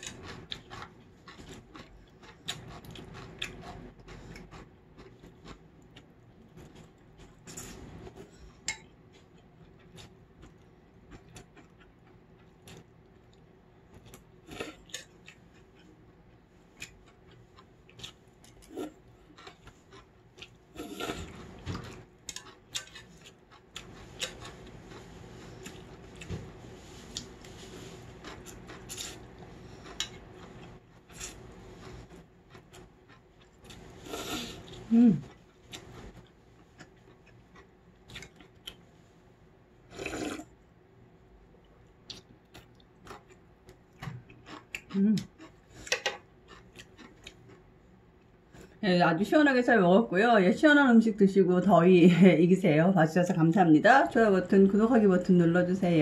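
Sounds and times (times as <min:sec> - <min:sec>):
chewing: 0:00.0 - 0:38.9, 0:41.9 - 0:48.8
slurping noodles: 0:20.7 - 0:21.6, 0:33.7 - 0:34.8, 0:39.9 - 0:40.5.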